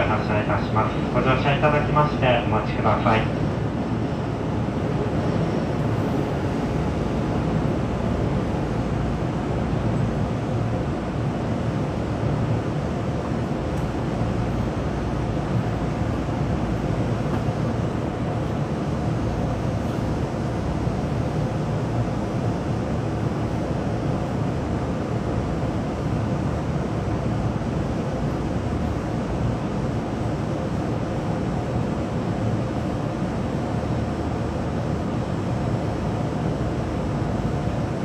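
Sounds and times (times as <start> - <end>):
train interior rumble: 0.0 - 38.0.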